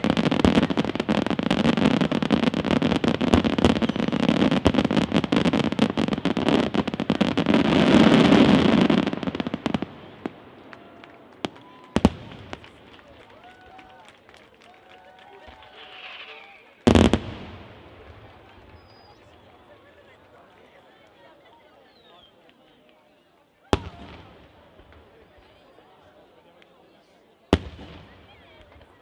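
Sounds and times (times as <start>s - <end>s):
firework bangs: 0.0s - 13.2s, 15.5s - 19.8s, 23.8s - 25.2s, 27.6s - 29.0s
fireworks bursting and crackling: 0.0s - 21.3s, 23.7s - 25.7s, 27.5s - 29.0s.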